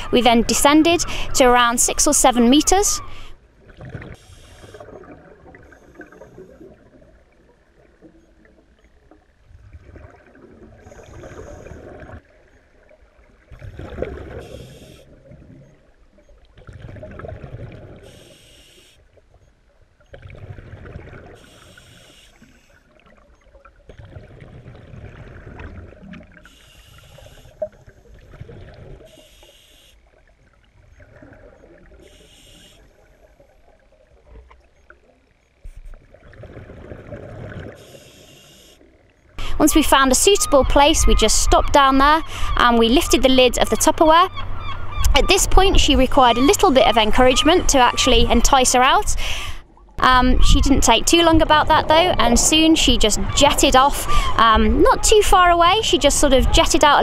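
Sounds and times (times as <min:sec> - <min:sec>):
exhaled bubbles gurgling: 0:00.0 - 0:18.4, 0:20.1 - 0:29.3, 0:30.1 - 0:32.3, 0:33.0 - 0:38.0
regulator breathing hiss: 0:18.1 - 0:19.0, 0:21.4 - 0:22.7, 0:26.5 - 0:27.6, 0:29.1 - 0:30.0, 0:32.0 - 0:32.9, 0:37.8 - 0:38.8.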